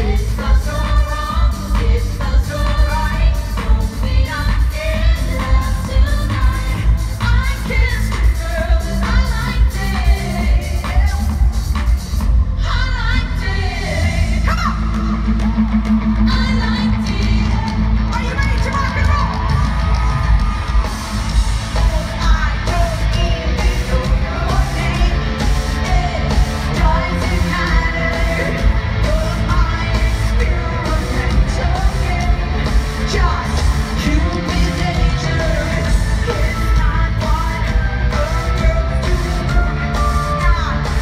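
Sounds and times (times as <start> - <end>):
woman singing: 0.0 - 11.9, 12.6 - 15.6, 16.2 - 20.3, 21.7 - 41.0
live pop band with heavy beat: 0.0 - 41.0
audience yelling: 14.5 - 22.3.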